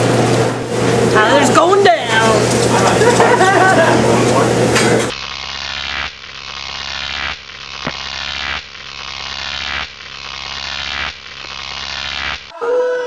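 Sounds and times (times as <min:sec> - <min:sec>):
steady low hum: 0:00.0 - 0:12.5
electronic hiss: 0:02.7 - 0:12.5.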